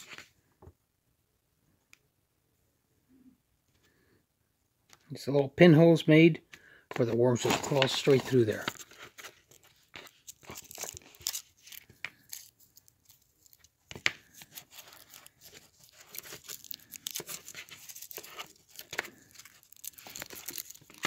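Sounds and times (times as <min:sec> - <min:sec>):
foil wrapper crinkling: 0:07.5 - 0:21.0.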